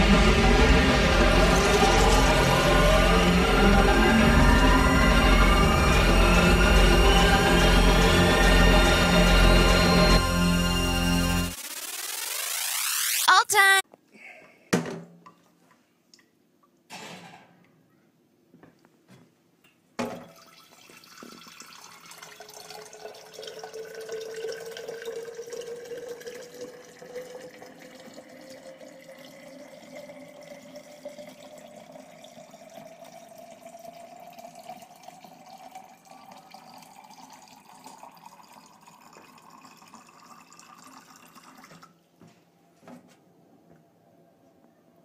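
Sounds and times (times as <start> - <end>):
water stream filling glass jar: 1.2 - 13.2, 20.2 - 42.0.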